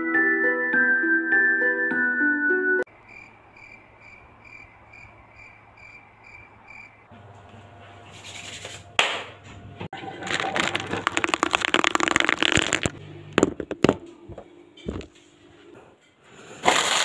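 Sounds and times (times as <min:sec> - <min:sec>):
crackly rustling handling noise: 0:10.2 - 0:13.0.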